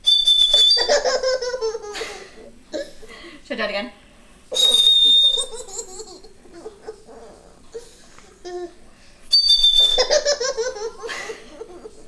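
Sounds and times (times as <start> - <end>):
toy bird whistle: 0.0 - 1.2, 4.5 - 5.6, 9.3 - 10.4
toddler belly laughter: 0.7 - 3.0, 5.4 - 7.5, 9.9 - 12.0.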